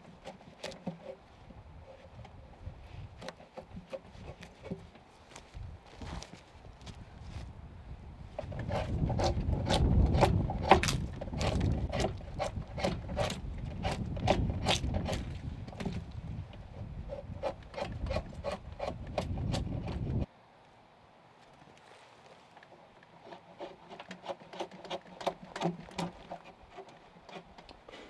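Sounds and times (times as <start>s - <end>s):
blade scraping wood: 0.0s - 5.0s, 8.3s - 20.3s, 22.7s - 28.0s
sleeve brushing rumble: 1.0s - 18.5s.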